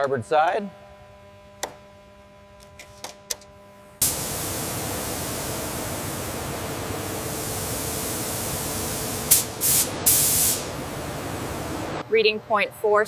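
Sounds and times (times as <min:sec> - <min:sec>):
paint spray gun hissing: 0:04.0 - 0:12.0.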